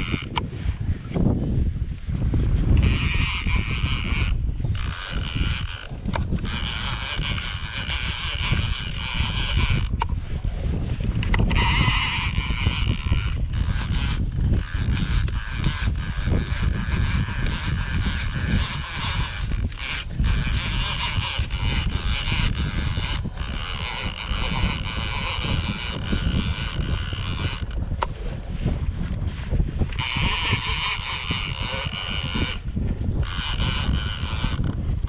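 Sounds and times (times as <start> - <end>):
fishing reel drag buzzing: 0.0 - 1.2, 2.6 - 35.0
wind rumble on microphone: 0.0 - 35.0.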